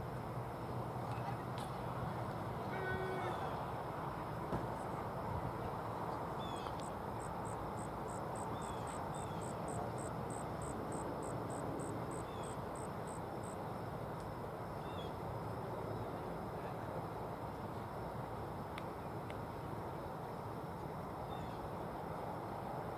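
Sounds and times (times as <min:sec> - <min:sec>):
outdoor background noise: 0:00.0 - 0:22.9
insect chirping: 0:02.6 - 0:16.1, 0:19.5 - 0:22.1.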